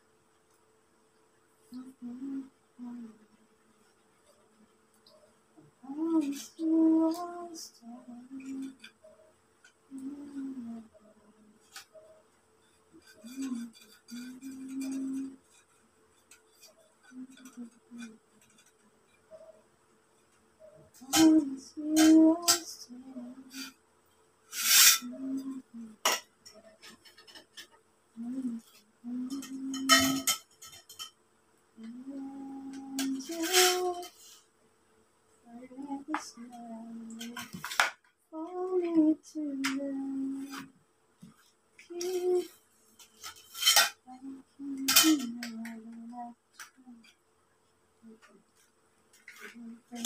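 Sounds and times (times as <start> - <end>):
woman humming: 1.7 - 3.4, 5.7 - 9.3, 9.9 - 12.2, 13.0 - 15.4, 17.0 - 18.3, 20.8 - 23.7, 24.9 - 26.9, 28.2 - 30.4, 31.8 - 34.3, 35.4 - 37.6, 38.3 - 40.7, 41.8 - 42.6, 44.0 - 47.1, 48.0 - 48.4, 49.4 - 50.0
metal tubes clinking and scraping: 12.9 - 19.4, 24.5 - 27.8, 28.5 - 31.2, 32.7 - 34.4, 42.0 - 44.2, 44.8 - 45.6
metal poles clinking and knocking: 29.3 - 31.1
metal scraping rattle: 32.9 - 34.4.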